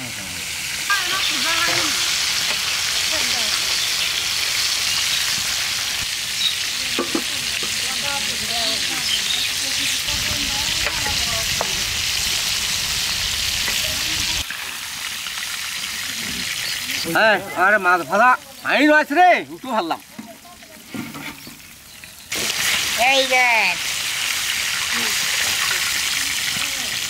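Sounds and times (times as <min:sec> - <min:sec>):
fish sizzling in hot oil: 0:00.0 - 0:27.0
metal spatula scraping pan: 0:20.8 - 0:21.6.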